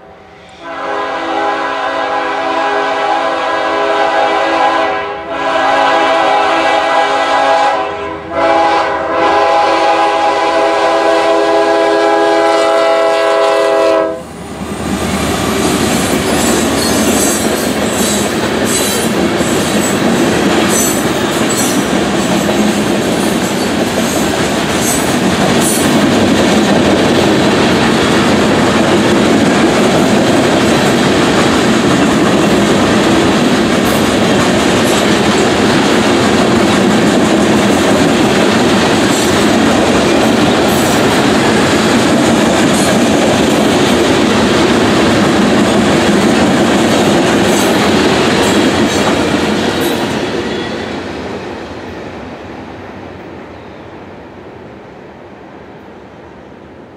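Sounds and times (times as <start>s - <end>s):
locomotive horn blasts: 0.1s - 14.3s.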